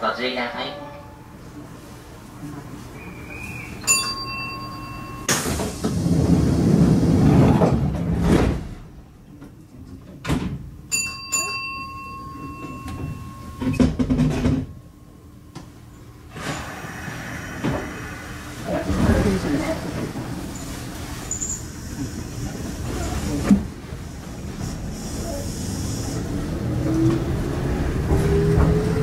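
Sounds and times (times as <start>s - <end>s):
train doors sliding shut: 5.2s - 9.1s, 16.3s - 29.0s
electronic door tone: 10.9s - 14.1s.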